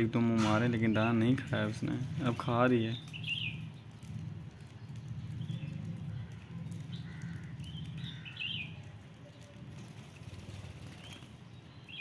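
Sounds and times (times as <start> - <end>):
low steady rumble: 1.2 - 11.8
budgerigars chirping: 5.4 - 8.8.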